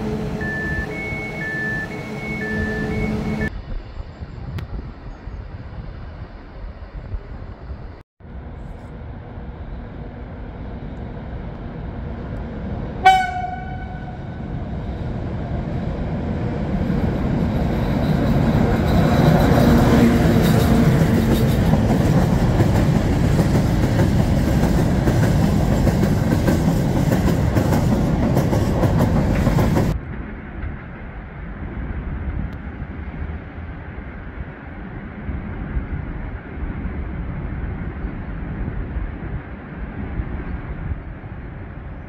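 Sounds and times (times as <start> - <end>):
train horn blast: 0.0 - 3.5, 13.0 - 14.4
freight train rumble and clatter: 1.8 - 42.0.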